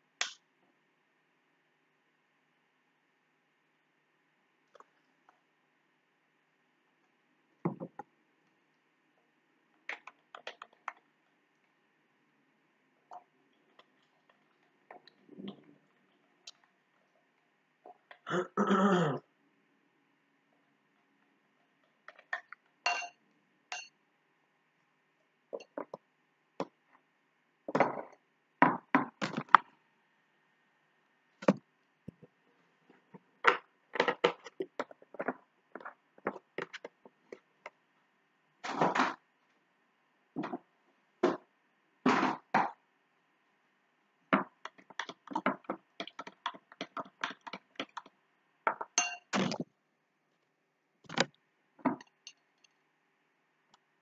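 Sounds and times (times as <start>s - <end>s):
kitchen containers knocking and clinking: 22.1s - 23.9s, 33.4s - 36.9s, 44.4s - 48.1s, 48.7s - 49.6s.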